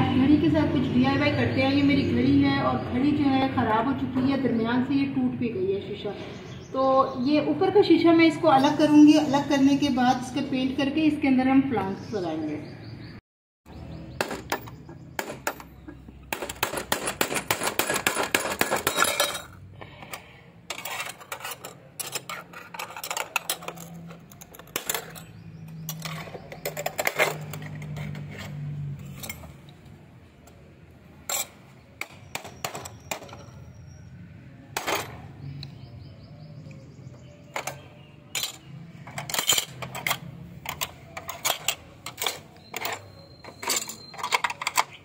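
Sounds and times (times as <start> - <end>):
glass shards clinking: 17.6 - 19.6, 20.7 - 29.6, 31.3 - 31.6, 37.6 - 45.0.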